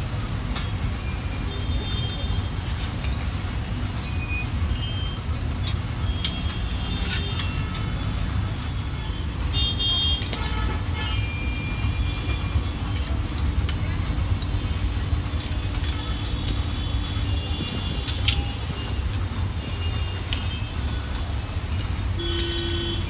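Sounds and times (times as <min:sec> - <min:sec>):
street traffic rumble: 0:00.0 - 0:23.0
hand tool clinking on steel: 0:02.6 - 0:07.9, 0:09.0 - 0:09.6, 0:10.2 - 0:11.8, 0:15.3 - 0:19.4, 0:20.1 - 0:23.0.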